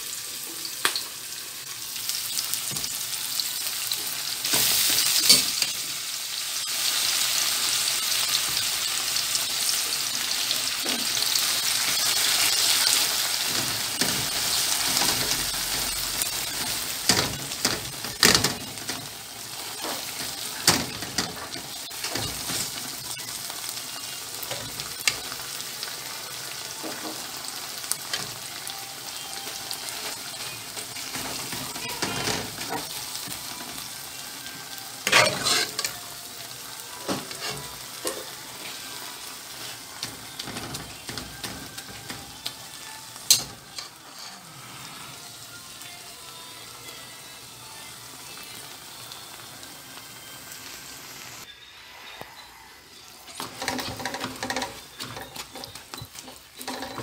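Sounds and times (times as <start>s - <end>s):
beans sizzling in oil: 0.0s - 57.0s
spatula scraping pan: 10.8s - 25.4s, 29.2s - 33.9s, 35.0s - 36.0s, 37.0s - 38.8s, 43.3s - 45.2s.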